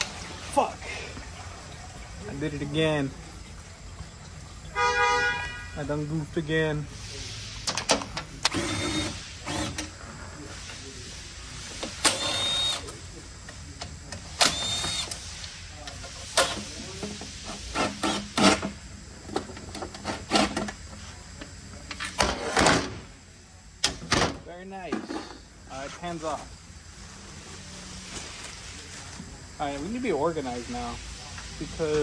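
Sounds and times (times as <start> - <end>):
electric ratchet whirring: 8.4 - 9.9, 12.0 - 12.8, 14.4 - 15.2, 17.7 - 18.8.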